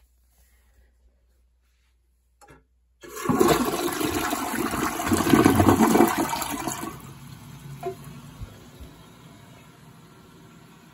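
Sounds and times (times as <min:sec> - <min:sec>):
toilet flushing: 0:03.0 - 0:10.9.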